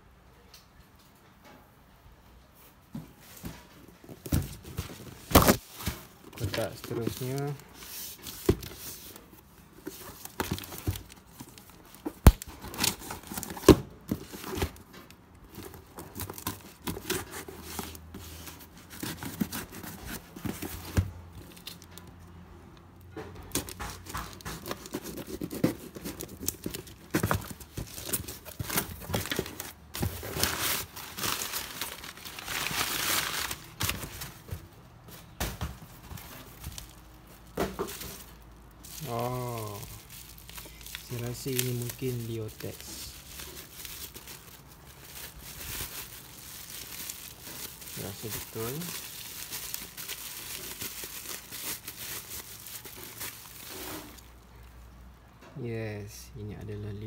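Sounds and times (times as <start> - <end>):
bubble wrap crinkling: 4.0 - 22.2, 23.5 - 34.6, 35.9 - 54.8
ripping tape and plastic: 5.2 - 8.6, 9.9 - 22.0, 23.5 - 34.3, 36.3 - 54.4
knife slitting box wrapping: 15.5 - 21.0, 23.5 - 34.2
box handling knocks and clicks: 23.2 - 30.4.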